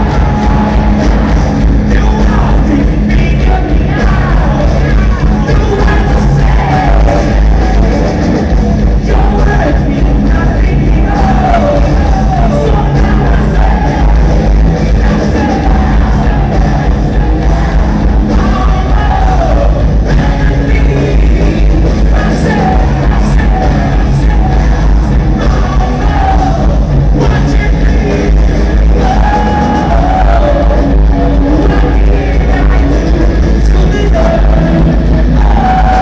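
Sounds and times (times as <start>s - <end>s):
live rock band playing: 0.0s - 36.0s
person singing: 0.0s - 36.0s.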